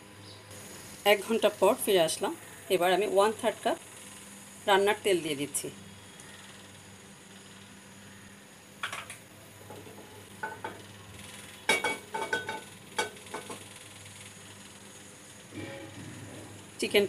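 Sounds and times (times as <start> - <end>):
utensils and dishes clinking: 11.7 - 13.6.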